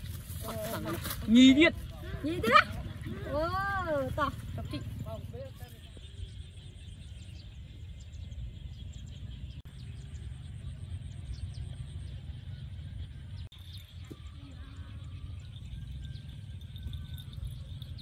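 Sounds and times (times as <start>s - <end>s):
faint bird chirps: 1.8s - 18.0s.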